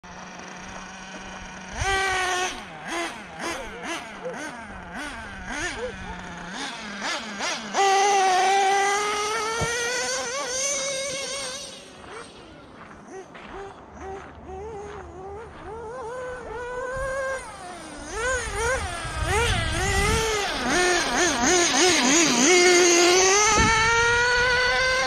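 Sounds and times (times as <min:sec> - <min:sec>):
model car engine revving: 0:00.0 - 0:25.0.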